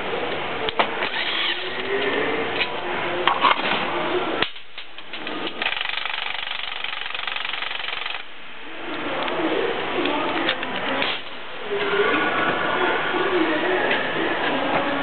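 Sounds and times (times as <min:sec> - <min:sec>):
impact wrench rattling: 0:05.5 - 0:08.2.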